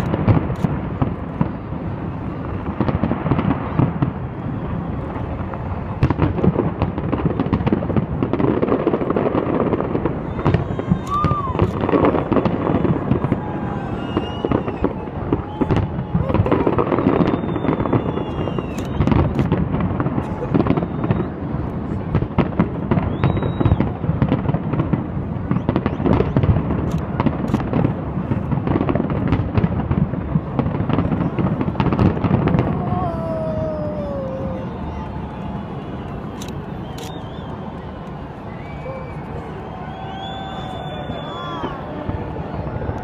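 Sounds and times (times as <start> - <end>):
fireworks bangs and crackling: 0.0 - 43.0
crowd voices: 8.1 - 24.3, 30.1 - 43.0.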